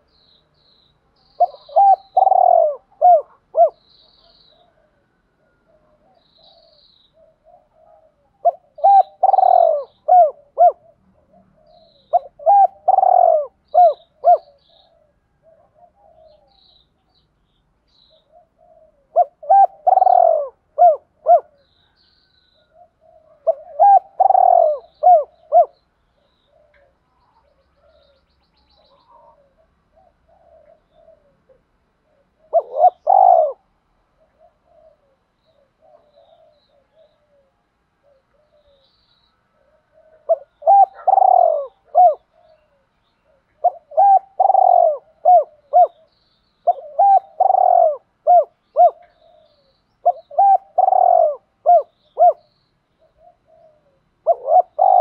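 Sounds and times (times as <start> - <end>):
dove cooing: 1.4 - 16.8, 18.1 - 22.0, 22.6 - 38.9, 39.5 - 55.0.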